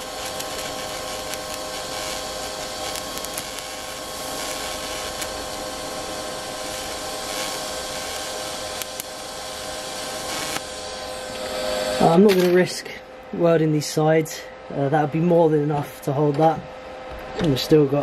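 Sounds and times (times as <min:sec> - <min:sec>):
welding arc hissing: 0:00.0 - 0:12.8
steady hum: 0:00.0 - 0:18.0.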